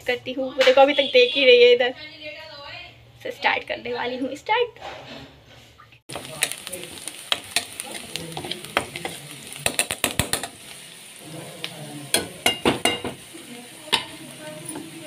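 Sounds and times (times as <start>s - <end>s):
onions sizzling in oil: 6.1s - 15.0s
spoon clinking and scraping pan: 12.1s - 13.2s.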